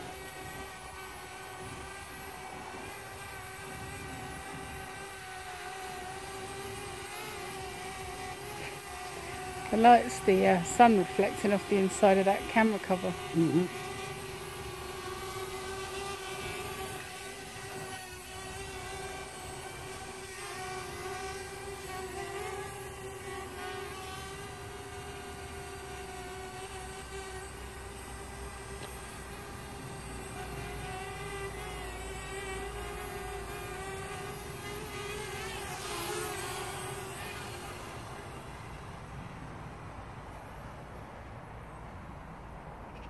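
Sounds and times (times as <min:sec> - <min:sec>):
drone propellers whining: 0:00.0 - 0:25.1.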